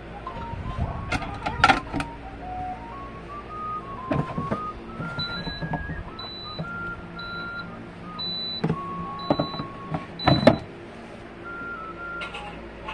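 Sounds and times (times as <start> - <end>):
thin tune of held tones: 0.2 - 10.7
plastic drip tray clattering: 4.1 - 6.9.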